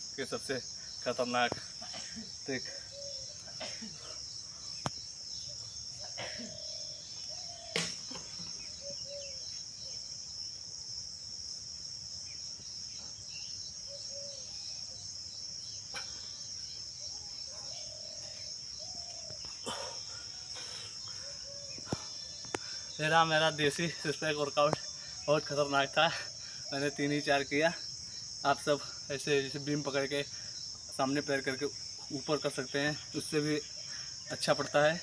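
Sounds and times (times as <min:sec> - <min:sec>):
insects chirping: 0:00.0 - 0:35.0.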